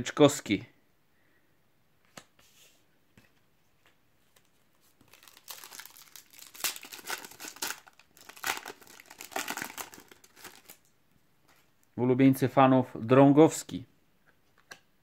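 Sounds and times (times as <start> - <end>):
foil wrapper crinkling and tearing: 5.0 - 10.9.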